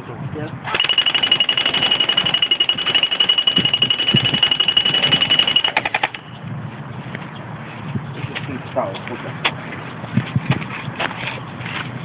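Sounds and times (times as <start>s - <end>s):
airsoft rifle buzzing rattle: 0.7s - 6.2s.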